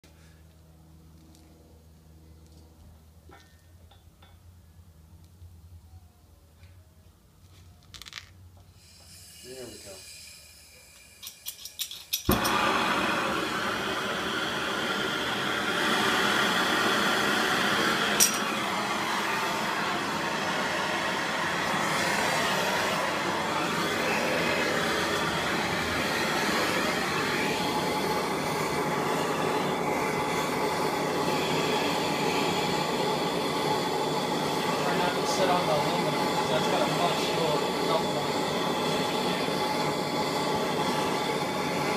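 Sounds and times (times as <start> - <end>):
heat gun blowing: 8.6 - 41.9.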